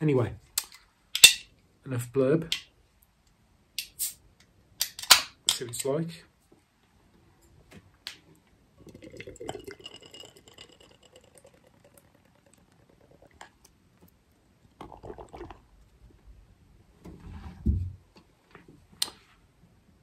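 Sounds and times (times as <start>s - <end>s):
beer pouring and fizzing in glass: 8.8s - 13.7s, 14.7s - 15.9s.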